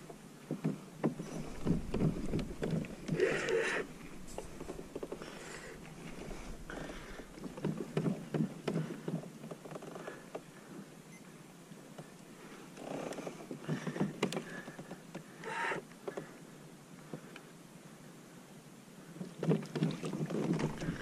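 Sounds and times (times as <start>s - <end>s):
kayak knocks and clicks: 0.0s - 10.5s, 13.4s - 15.3s, 19.2s - 21.0s
rustling: 0.7s - 10.8s, 19.3s - 21.0s.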